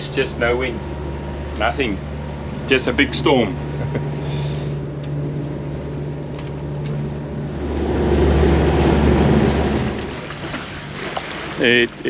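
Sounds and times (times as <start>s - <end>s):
diesel engine humming: 0.0s - 12.0s
low rushing sound: 6.6s - 10.6s.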